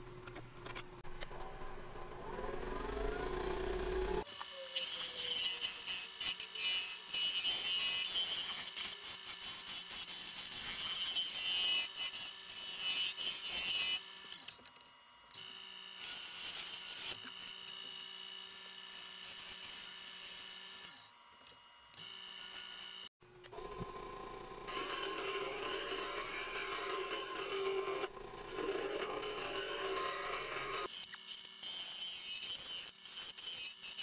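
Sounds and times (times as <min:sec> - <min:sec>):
lathe motor hum: 0:01.4 - 0:04.2, 0:23.5 - 0:30.9
turning tool scraping on lathe: 0:24.6 - 0:34.0.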